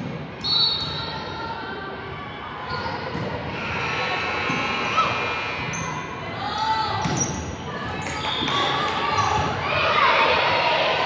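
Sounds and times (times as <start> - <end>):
ball and court sounds: 0.0 - 1.2, 2.7 - 6.2, 6.9 - 11.0
spectator chatter: 0.9 - 11.0.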